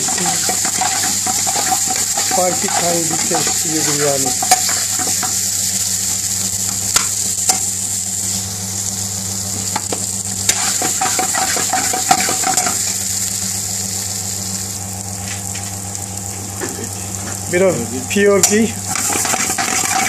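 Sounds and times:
metal spoon scraping pan: 0.0 - 5.4, 18.9 - 20.0
spoon knocking pan: 0.0 - 5.5, 9.6 - 12.9
meat and onions sizzling: 0.0 - 20.0
steady low hum: 0.0 - 20.0.

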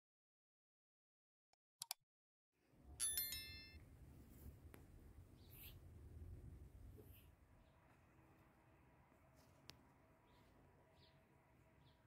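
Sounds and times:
faint low outdoor rumble: 2.6 - 12.0.

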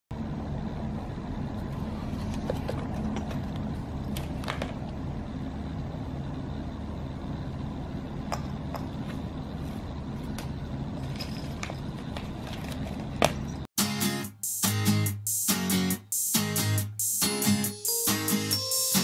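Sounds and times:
steady low hum: 0.1 - 13.7.

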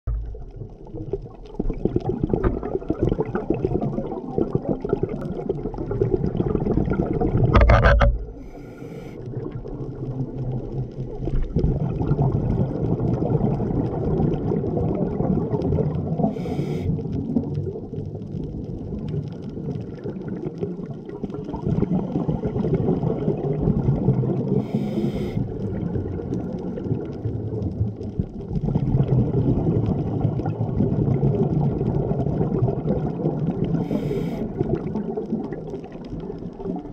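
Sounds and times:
exhaled air bubbling: 0.1 - 36.9
regulator inhalation hiss: 8.4 - 9.2, 16.3 - 17.0, 24.6 - 25.5, 33.8 - 34.5.

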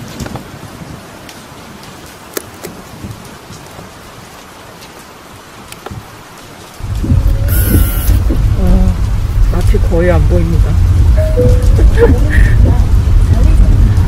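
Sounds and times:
steady rain falling: 0.0 - 14.0
car driving rumble from inside: 6.8 - 14.0.

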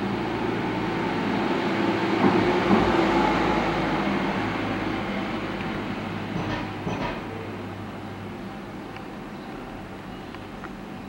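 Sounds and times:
vehicle passing: 0.0 - 6.3.

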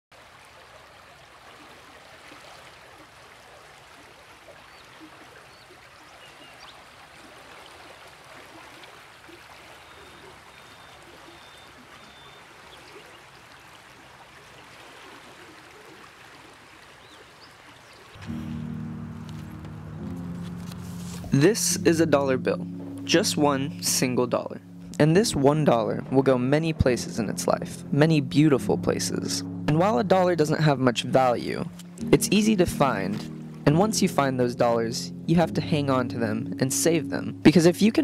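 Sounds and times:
running water: 0.1 - 22.1
music with low sustained chord: 18.2 - 38.0.

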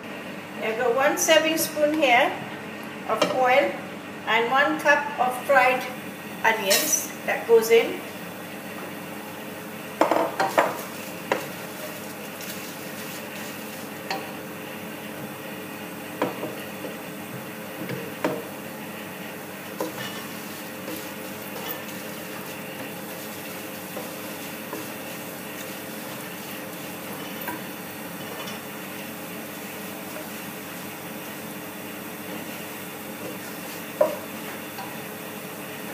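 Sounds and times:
onions sizzling in oil: 9.6 - 35.9
wooden spoon knocking pan: 34.0 - 34.3.

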